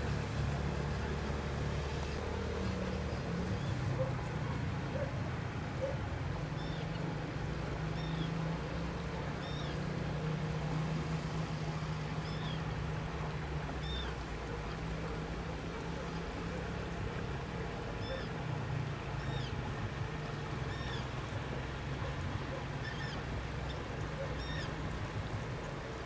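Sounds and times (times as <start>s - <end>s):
small bird calling: 5.8s - 7.0s, 7.9s - 8.4s, 9.4s - 9.9s, 12.1s - 12.7s, 13.8s - 14.2s, 17.8s - 18.4s, 19.2s - 24.8s.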